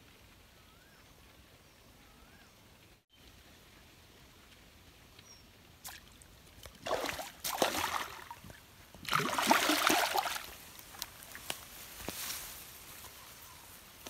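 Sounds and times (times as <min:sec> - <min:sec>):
fish splashing in water: 0:05.8 - 0:10.6.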